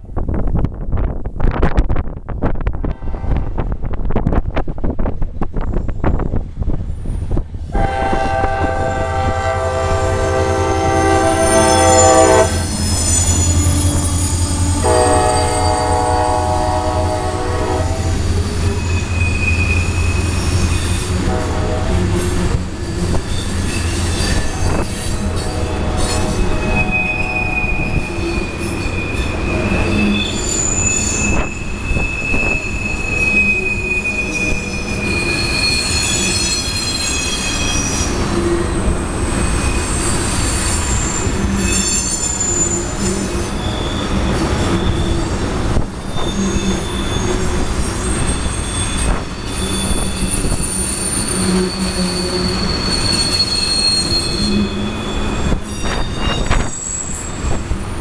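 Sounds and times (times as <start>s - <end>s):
low rumble of locomotive engine: 0.0s - 37.0s
locomotive horn blasts: 7.7s - 12.8s, 14.6s - 18.3s, 21.2s - 22.6s, 24.7s - 28.0s
train wheels squealing: 9.9s - 21.2s, 22.1s - 58.0s.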